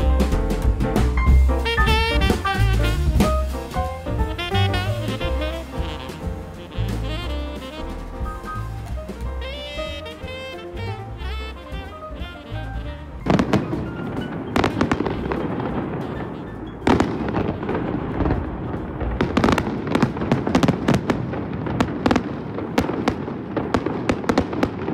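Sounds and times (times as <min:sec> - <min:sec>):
music: 0:00.0 - 0:20.7
fireworks bangs and crackling: 0:00.0 - 0:24.9.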